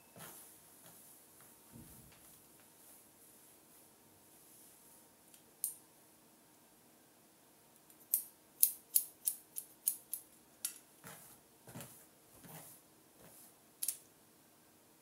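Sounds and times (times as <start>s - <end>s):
soft rustling: 0.1s - 5.0s
scissors snipping hair: 8.0s - 10.2s.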